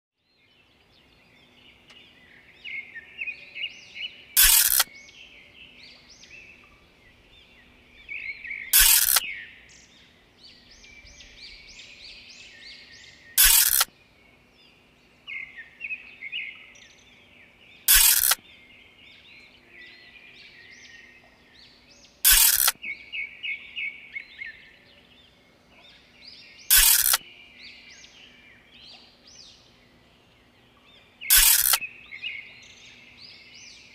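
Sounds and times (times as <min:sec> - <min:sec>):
birds chirping: 0:00.3 - 0:33.9
loud short noise bursts: 0:04.4 - 0:04.8, 0:08.7 - 0:09.2, 0:13.4 - 0:13.9, 0:17.9 - 0:18.4, 0:22.3 - 0:22.7, 0:26.7 - 0:27.2, 0:31.3 - 0:31.8.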